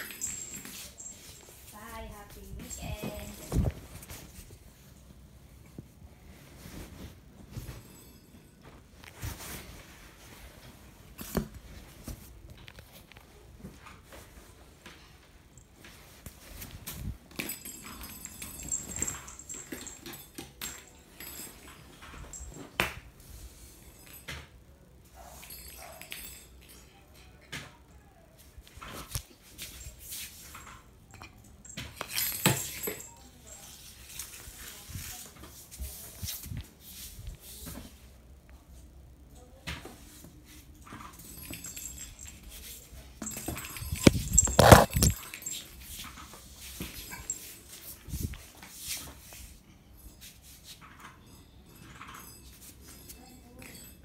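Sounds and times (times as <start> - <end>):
faint rustling: 0.0 - 19.8.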